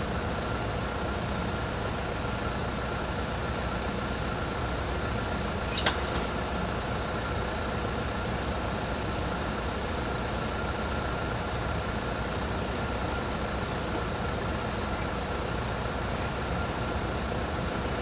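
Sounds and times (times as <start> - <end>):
faint high steady tone: 5.7 - 6.4.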